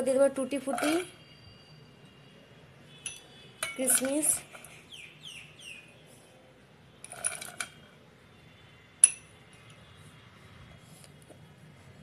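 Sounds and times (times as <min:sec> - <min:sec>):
metallic clink with ring: 0:03.0 - 0:04.1, 0:09.0 - 0:09.3
raisins rattling into saucepan: 0:03.6 - 0:04.5.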